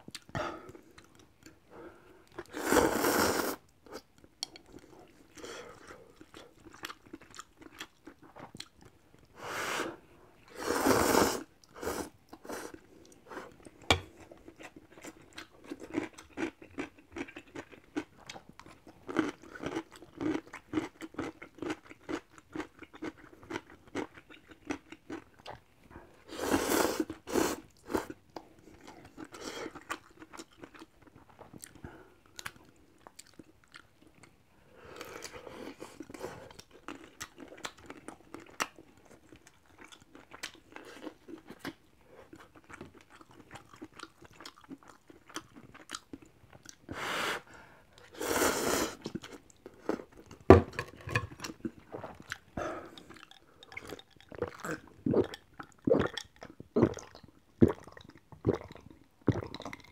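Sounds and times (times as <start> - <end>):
wet chewing with mouth clicks: 3.9 - 9.4, 27.0 - 34.4, 35.0 - 46.9, 48.9 - 59.9
noodle slurps: 10.5 - 12.7.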